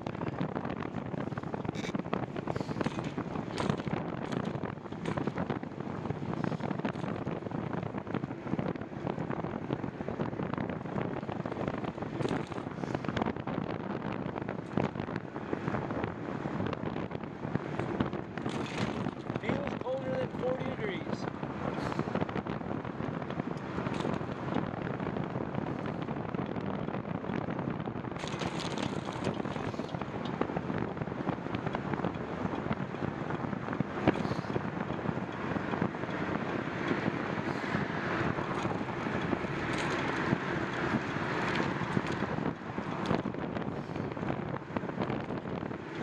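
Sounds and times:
wind rushing over microphone: 0.0 - 46.0
small clicks and knocks: 2.7 - 5.6, 12.2 - 13.3, 23.3 - 24.7, 28.2 - 30.4, 38.3 - 43.3.

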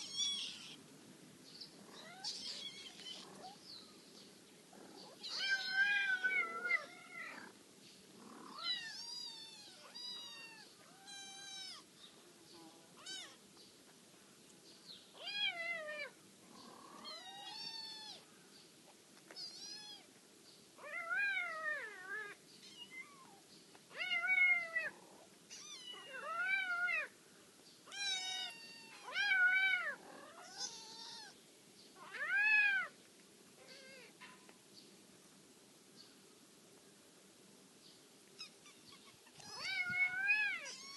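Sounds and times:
kittens meowing: 0.0 - 0.8, 1.8 - 3.6, 5.0 - 7.5, 8.2 - 11.8, 15.2 - 18.3, 19.3 - 20.1, 20.8 - 27.1, 27.9 - 31.4, 38.4 - 40.9.

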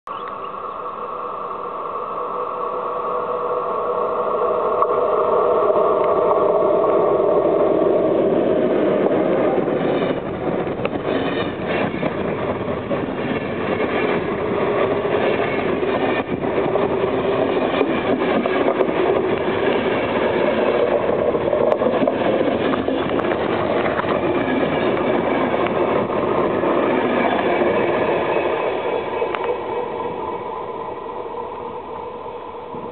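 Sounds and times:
electric locomotive whine: 0.1 - 32.9
train wheels clicking over rail joints: 9.8 - 29.6.

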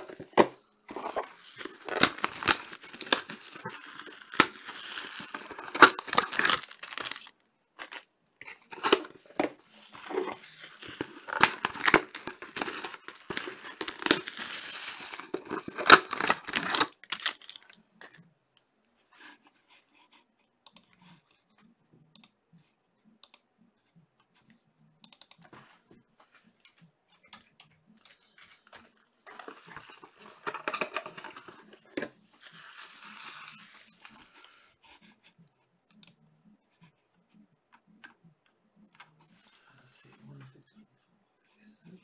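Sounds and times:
wrapper crinkling and tearing: 0.9 - 17.8, 29.3 - 31.8, 32.4 - 34.5.

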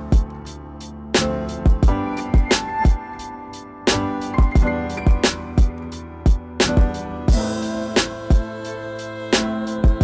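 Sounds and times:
steady drum beat: 1.5 - 3.3, 3.9 - 8.5.

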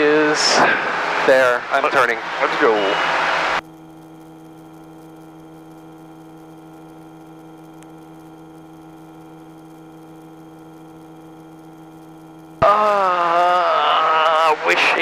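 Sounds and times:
steady electrical hum: 0.0 - 15.0.

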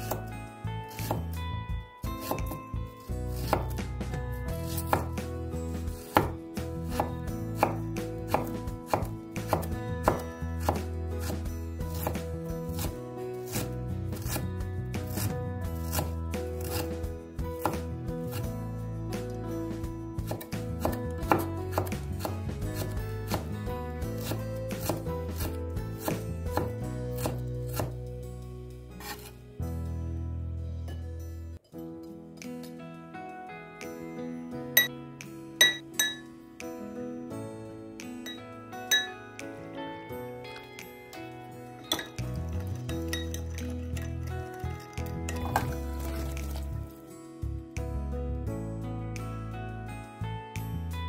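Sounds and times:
knife chopping on wooden board: 0.0 - 0.3, 1.0 - 1.3, 2.2 - 2.6, 3.4 - 3.8, 4.7 - 5.2, 6.0 - 14.5, 15.1 - 17.0, 17.6 - 18.4, 20.2 - 23.6, 24.2 - 28.0.

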